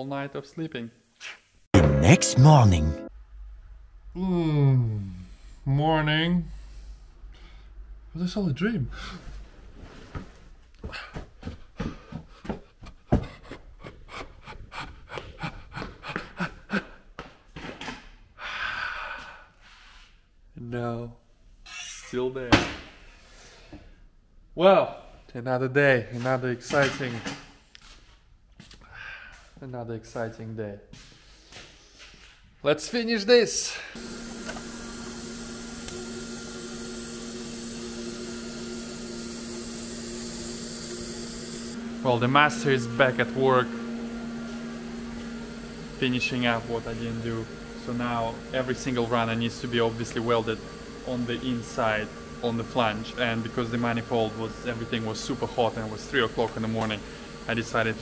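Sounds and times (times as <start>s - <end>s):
quick footsteps: 10.2s - 13.9s
welding hiss: 34.0s - 41.8s
welding set hum: 34.0s - 58.0s.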